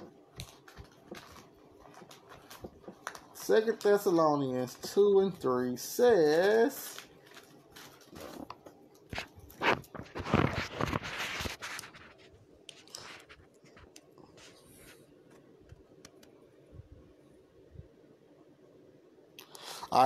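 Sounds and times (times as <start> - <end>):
phone rubbing and rustling: 6.1 - 15.5.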